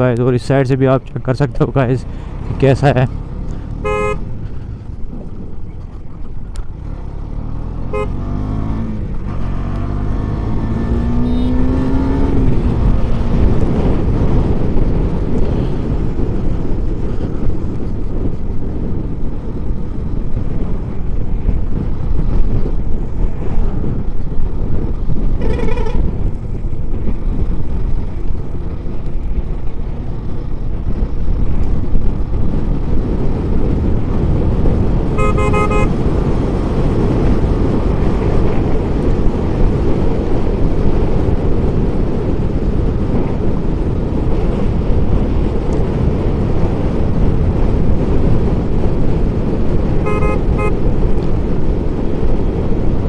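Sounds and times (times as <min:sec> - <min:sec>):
wind rush on microphone: 0:00.0 - 0:53.0
motorcycle engine accelerating: 0:02.1 - 0:53.0
vehicle horn toot: 0:03.8 - 0:04.2, 0:07.9 - 0:08.2, 0:35.2 - 0:36.0, 0:50.0 - 0:50.8.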